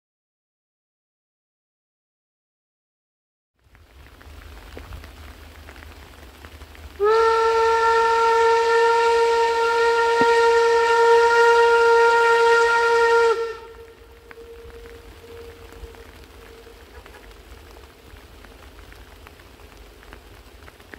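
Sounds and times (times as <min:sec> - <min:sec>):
rain hiss: 0:03.6 - 0:20.9
steam locomotive whistle: 0:07.0 - 0:17.7.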